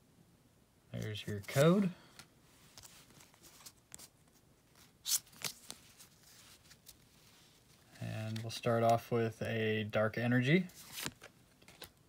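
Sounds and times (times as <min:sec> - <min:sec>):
card scrape: 0:01.0 - 0:01.9, 0:04.8 - 0:07.0
trading cards rustling: 0:01.0 - 0:09.3, 0:10.6 - 0:12.0.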